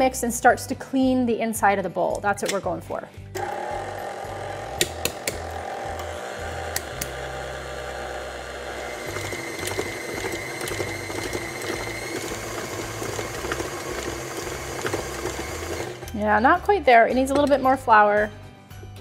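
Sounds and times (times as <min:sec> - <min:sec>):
stand mixer motor running: 0:03.4 - 0:16.1.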